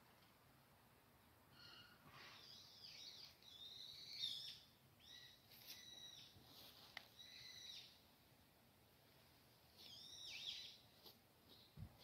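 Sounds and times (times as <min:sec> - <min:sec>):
birds chirping and whistling: 0:01.6 - 0:06.3, 0:07.2 - 0:08.0, 0:09.9 - 0:10.8.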